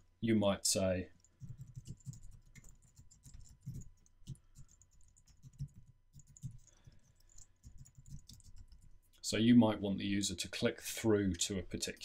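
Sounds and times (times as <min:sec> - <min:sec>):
keyboard typing: 0:01.2 - 0:09.0.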